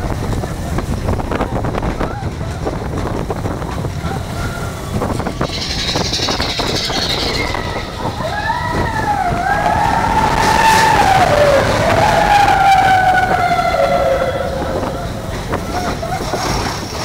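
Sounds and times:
roller coaster rattling on track: 0.0 - 17.0
wind on microphone: 0.0 - 17.0
high-pitched squeal: 4.1 - 17.0.

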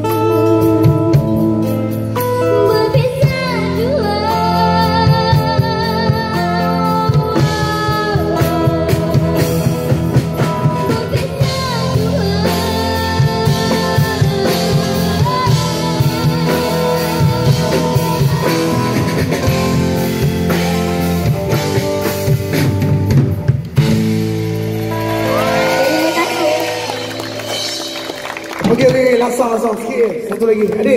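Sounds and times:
drum kit: 0.0 - 29.4
girl singing: 2.2 - 9.7, 10.6 - 19.4.

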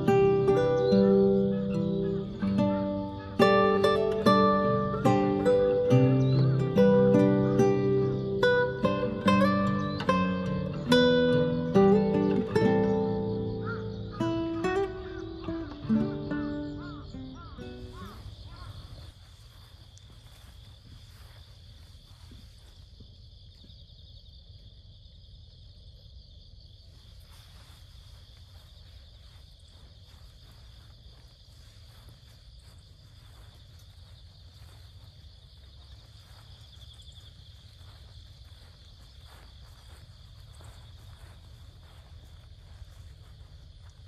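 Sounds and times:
insects chirring: 0.0 - 44.0.

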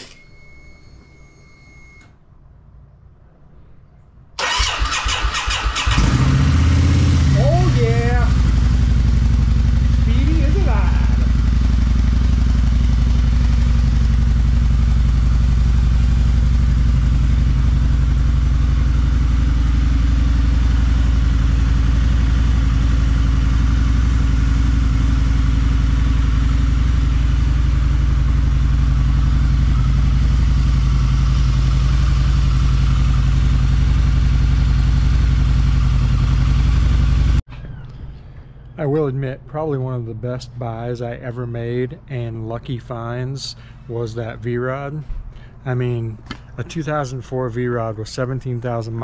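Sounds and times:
motorcycle engine idling: 4.4 - 37.4.

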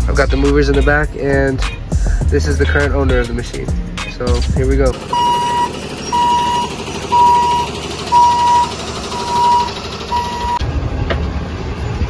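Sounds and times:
truck reversing alarm beeping: 5.0 - 10.7.

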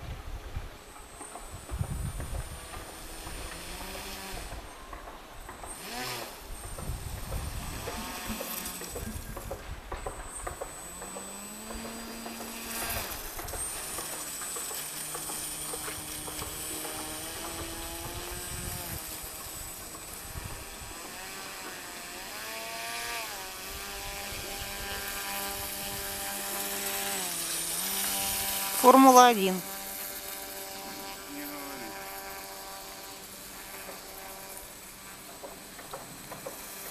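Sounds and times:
small electric motor whining: 0.0 - 36.9.

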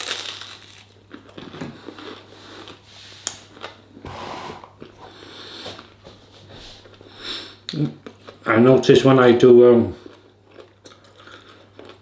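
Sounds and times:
chewing and crunching bread: 0.0 - 4.0, 9.7 - 12.0.

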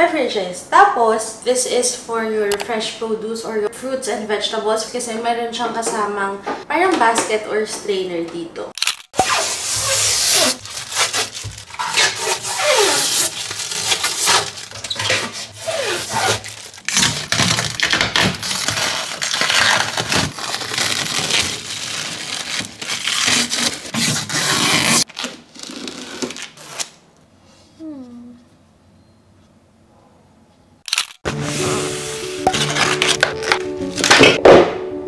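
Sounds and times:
plastic film crackling and tearing: 8.7 - 27.0, 32.5 - 34.4.

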